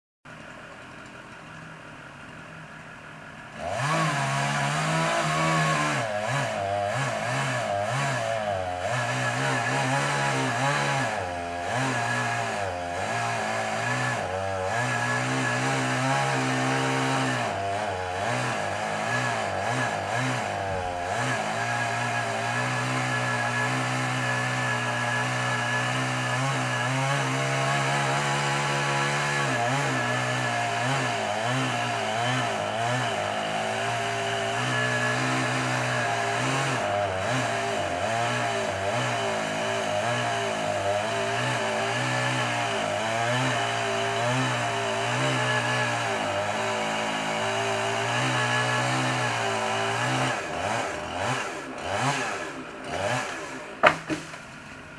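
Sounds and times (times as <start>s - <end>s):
chainsaw cutting wood: 3.5s - 54.9s.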